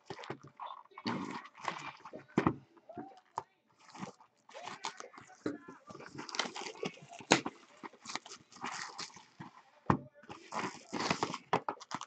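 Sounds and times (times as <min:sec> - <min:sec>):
foil wrappers crinkling: 0:03.8 - 0:09.6, 0:10.3 - 0:12.0.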